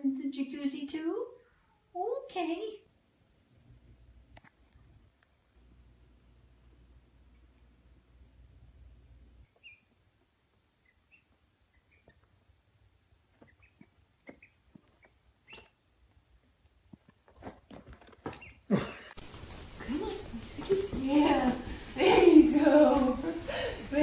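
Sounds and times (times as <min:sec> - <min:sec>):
rustling: 0:09.4 - 0:24.0
ducklings peeping: 0:09.5 - 0:10.1, 0:10.7 - 0:12.4, 0:13.4 - 0:15.8, 0:18.4 - 0:18.7.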